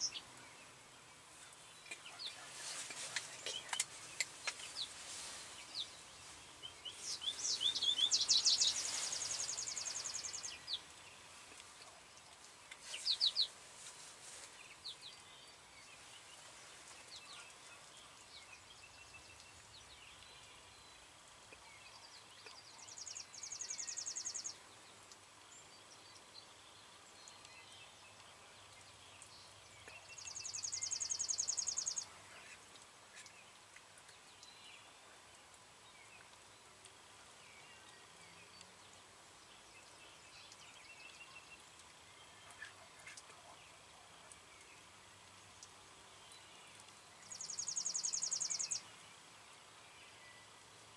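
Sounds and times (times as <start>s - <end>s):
faint bird chirps: 25.6s - 38.8s, 45.5s - 49.2s.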